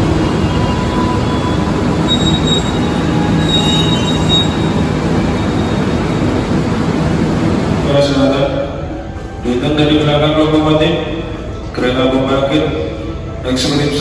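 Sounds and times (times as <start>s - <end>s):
train rumbling on rails: 0.0s - 14.0s
wheel squeal: 0.2s - 5.9s.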